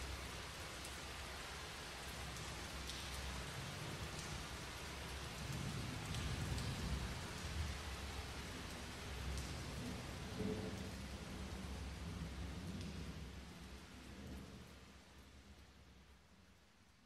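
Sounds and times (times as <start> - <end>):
rain falling: 0.0 - 17.0.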